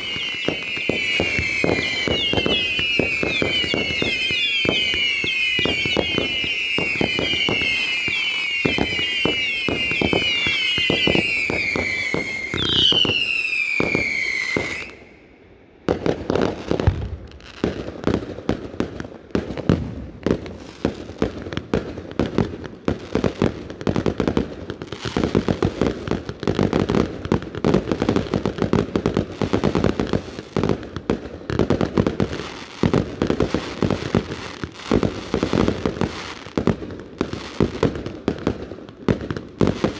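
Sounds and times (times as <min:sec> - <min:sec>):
firework bangs: 0:00.0 - 0:15.1
firework crackling: 0:00.0 - 0:15.1, 0:15.8 - 0:39.9
firework whistles falling in pitch: 0:00.0 - 0:15.4.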